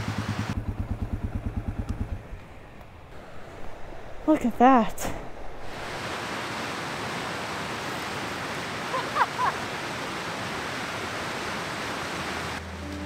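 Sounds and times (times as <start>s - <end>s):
whitewater river rushing: 5.0s - 13.0s.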